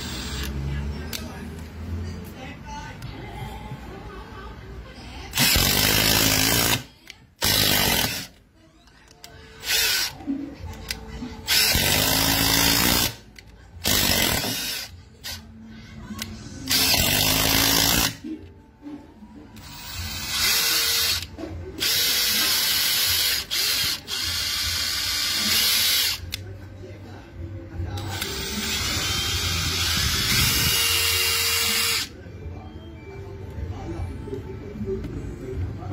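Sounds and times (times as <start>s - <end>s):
impact driver driving screws into wood: 5.4s - 8.4s, 11.5s - 13.2s, 13.8s - 14.9s, 16.7s - 18.2s, 28.1s - 32.1s.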